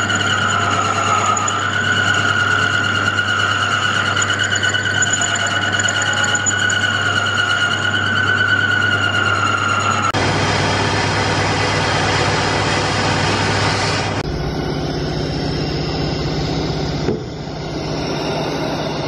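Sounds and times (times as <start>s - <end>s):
drill cutting whine: 0.0s - 10.2s
lathe motor hum: 0.0s - 10.5s.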